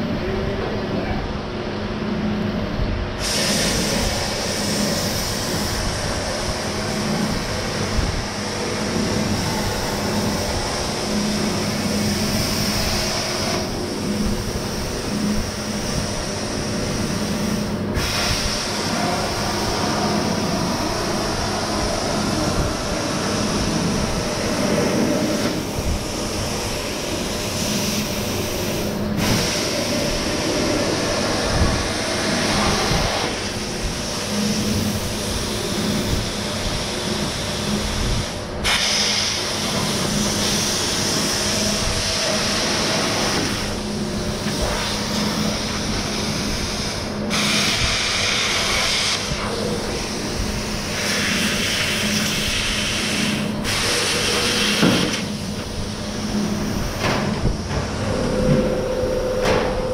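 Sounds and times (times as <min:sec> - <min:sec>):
plasma cutter hissing: 0:03.2 - 0:35.0, 0:36.0 - 0:43.8, 0:44.5 - 0:57.0
low hum: 0:55.6 - 0:59.9.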